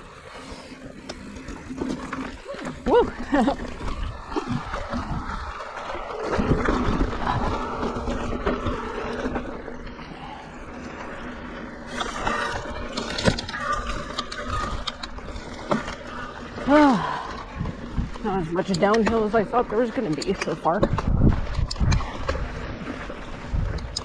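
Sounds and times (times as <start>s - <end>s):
bike rattling: 0.0s - 24.0s
wind rumbling on microphone: 1.2s - 10.4s, 16.3s - 24.0s.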